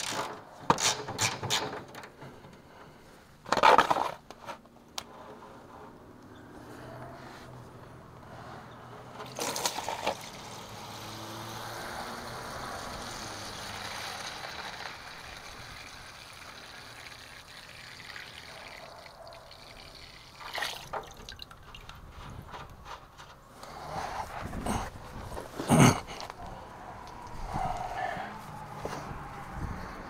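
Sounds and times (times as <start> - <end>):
fuel trickling into container: 9.1 - 22.8.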